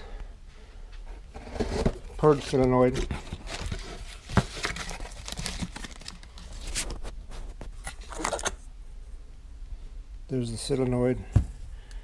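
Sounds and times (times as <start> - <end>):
plastic bags and cardboard crinkling: 1.4 - 8.6.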